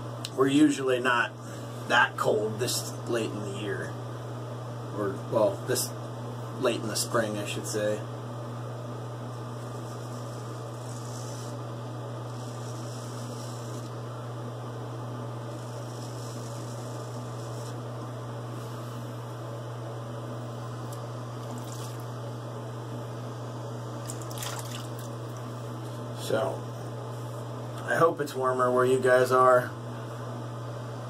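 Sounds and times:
low electrical hum: 0:00.0 - 0:31.0
razor shaving stubble: 0:09.6 - 0:11.6, 0:12.2 - 0:14.0.

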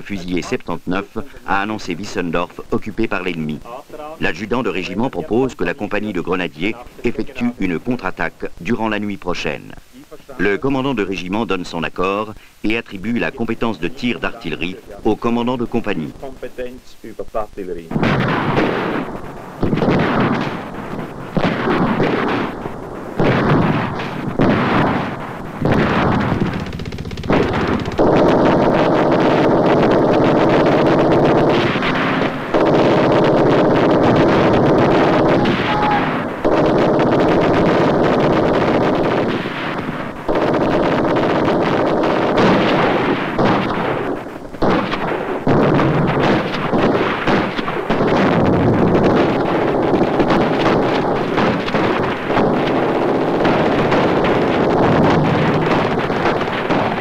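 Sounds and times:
gunshots with echo: 0:00.0 - 0:09.8, 0:10.4 - 0:16.3, 0:17.9 - 0:57.0
explosions: 0:00.0 - 0:16.8, 0:17.8 - 0:57.0
continuous automatic gunfire: 0:17.9 - 0:57.0.

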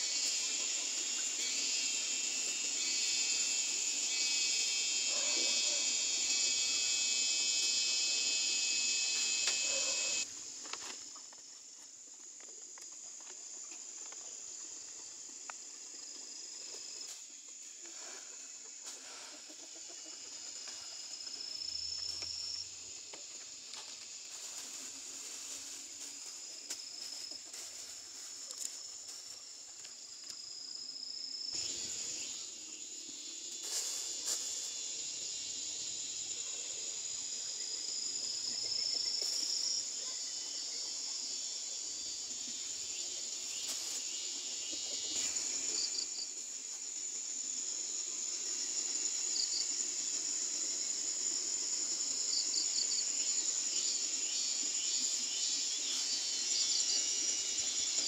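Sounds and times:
insects trilling: 0:00.0 - 0:58.0.

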